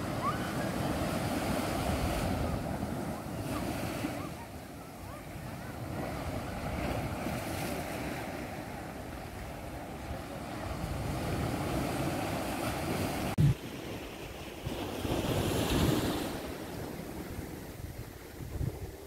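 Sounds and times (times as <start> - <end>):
small waves washing onto beach: 0.0 - 19.0
wind blowing on microphone: 10.1 - 19.0.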